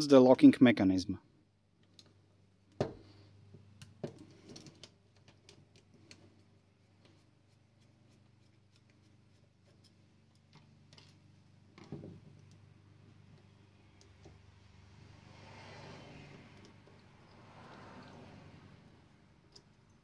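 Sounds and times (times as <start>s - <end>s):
screwdriver ticks and scrapes: 3.8s - 11.2s.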